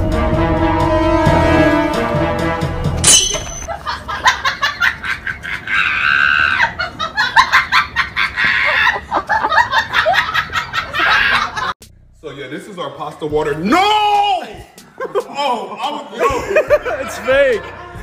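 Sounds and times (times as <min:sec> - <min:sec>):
music: 0:00.0 - 0:03.5, 0:11.8 - 0:18.0
young woman shrieking and laughing: 0:04.2 - 0:11.7.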